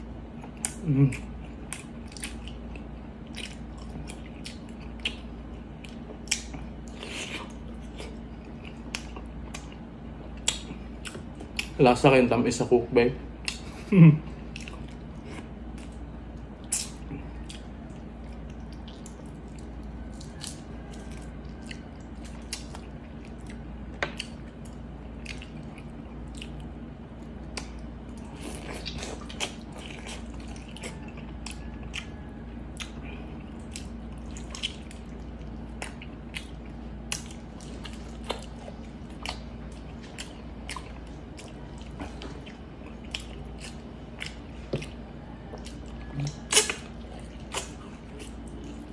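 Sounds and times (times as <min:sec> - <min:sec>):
steady low hum: 0:00.0 - 0:48.9
wet chewing and lip-smacking: 0:00.3 - 0:11.8, 0:13.4 - 0:48.9.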